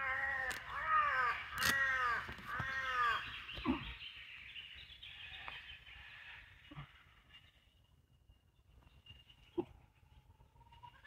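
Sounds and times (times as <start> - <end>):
crow cawing: 0.0 - 3.3.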